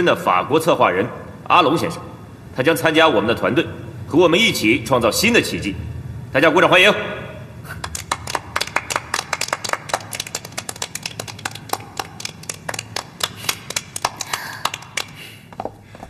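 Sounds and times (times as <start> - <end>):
people clapping: 7.8 - 15.4.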